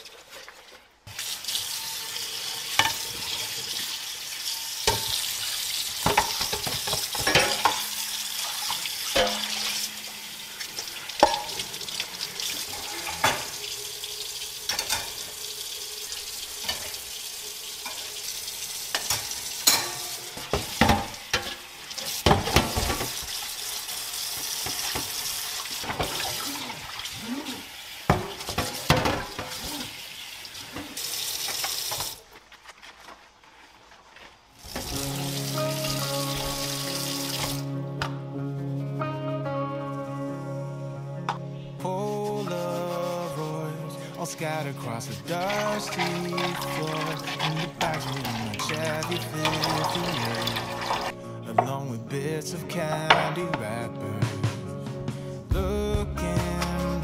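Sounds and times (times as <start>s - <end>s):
tap water running into sink: 1.1s - 27.2s, 27.8s - 32.2s, 34.6s - 37.6s, 45.2s - 51.1s
dishes and utensils clinking: 2.6s - 3.6s, 4.5s - 13.7s, 14.6s - 15.4s, 17.8s - 18.2s, 18.9s - 23.3s, 28.1s - 29.8s, 45.3s - 51.8s.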